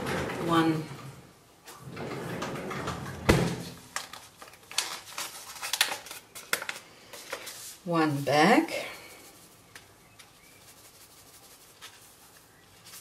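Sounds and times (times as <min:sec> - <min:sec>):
paper sachet crinkling and tearing: 0:03.9 - 0:07.8.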